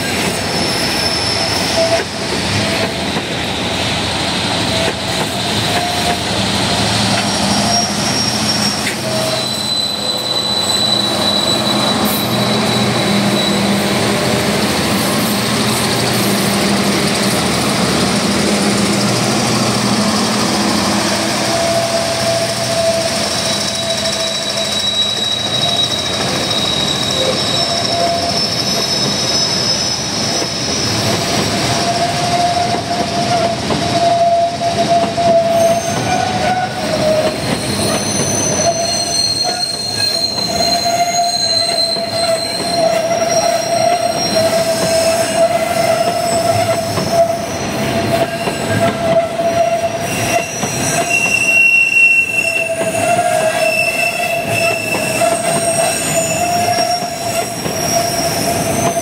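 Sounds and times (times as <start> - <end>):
steel wheels rumbling on rail: 0.0 - 59.0
wheel flanges squealing: 0.1 - 3.8, 4.5 - 59.0
short high squeals: 7.0 - 14.1, 20.2 - 30.8, 33.9 - 59.0.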